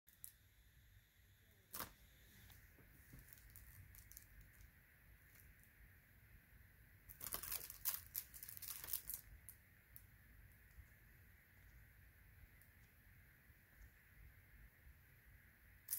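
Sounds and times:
plastic shrink-wrap crinkling: 3.1 - 4.7, 7.1 - 9.6.

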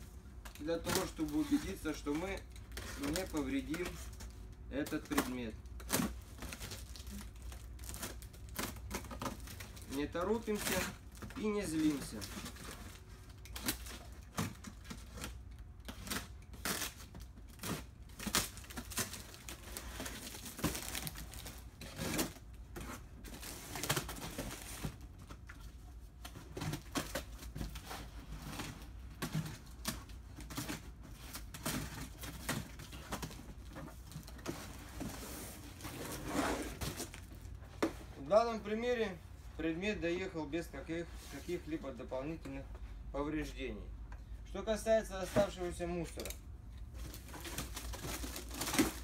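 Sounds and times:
cardboard and packing tape tearing: 4.9 - 25.0, 47.0 - 49.0.

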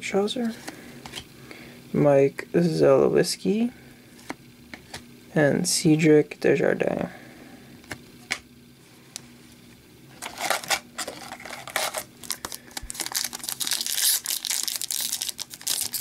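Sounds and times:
foil card packs crinkling: 10.2 - 16.0.

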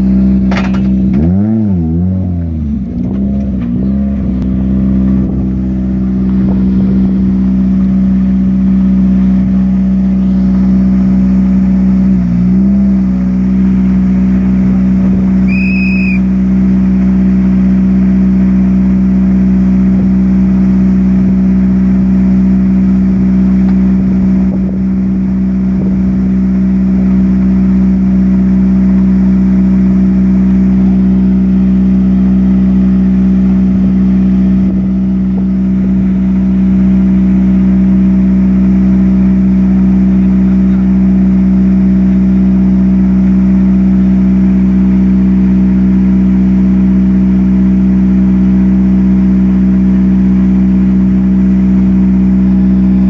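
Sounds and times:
engine throttle blips: 0.0 - 53.0
rally car engine idling: 0.0 - 53.0
short high beep: 15.5 - 16.3.

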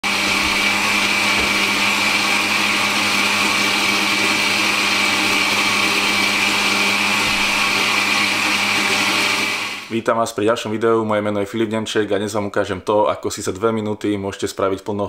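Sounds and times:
blender motor humming: 0.0 - 9.9.

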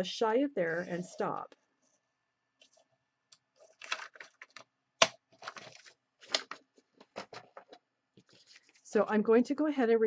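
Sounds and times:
paper rustling: 3.5 - 4.6, 5.3 - 9.0.

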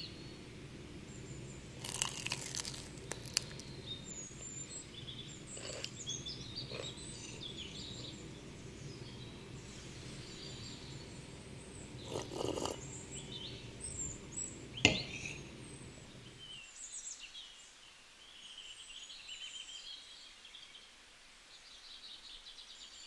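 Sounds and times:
small birds chirping: 0.0 - 17.6
low background noise: 0.0 - 23.0.

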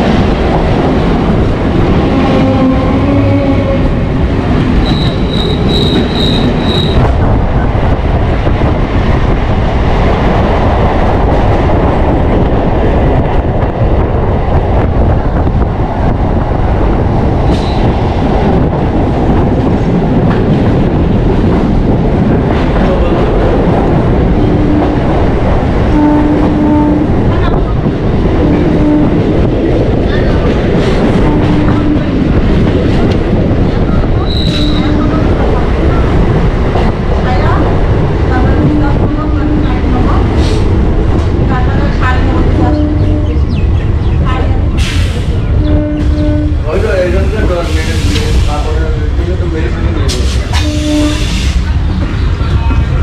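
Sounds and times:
train passing close: 0.0 - 53.0
train wheels rumbling on track: 0.0 - 53.0
rushing air: 39.8 - 42.6, 43.4 - 45.6, 46.6 - 49.2, 49.8 - 53.0.

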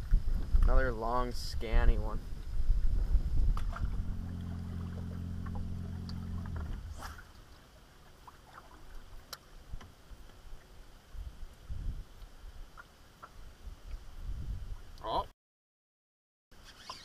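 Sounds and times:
boat motor humming: 3.6 - 7.5.

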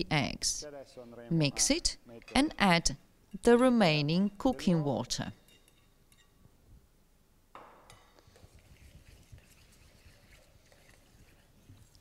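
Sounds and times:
fork scraping metal bowl: 8.2 - 12.0.

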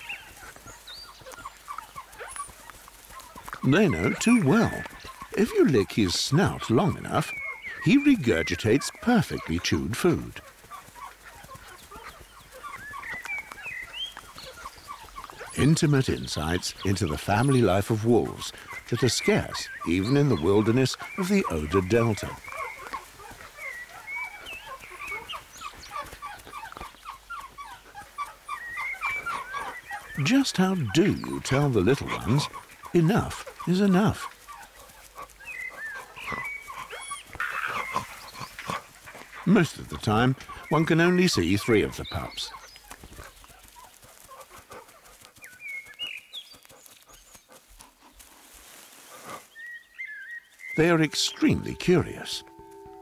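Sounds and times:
wolf pups whimpering: 0.0 - 5.7, 10.4 - 40.8, 50.8 - 53.0
scuffling and rustling: 47.8 - 49.5.

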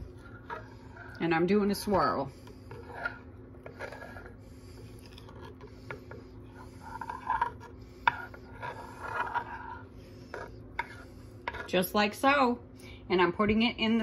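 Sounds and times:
knife scraping through fudge: 0.1 - 1.2, 2.1 - 11.8.

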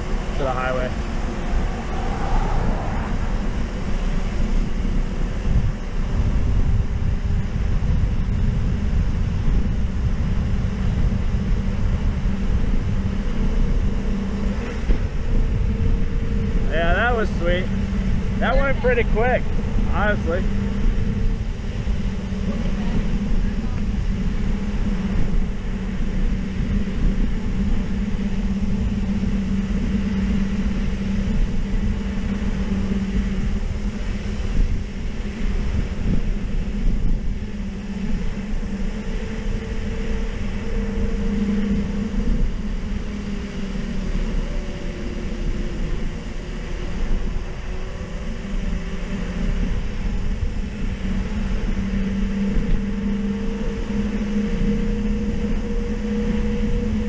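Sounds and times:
wavering higher tone: 0.0 - 5.2, 20.4 - 57.0
bicycle tyre hum on road: 0.0 - 57.0
wind on microphone: 0.0 - 57.0.

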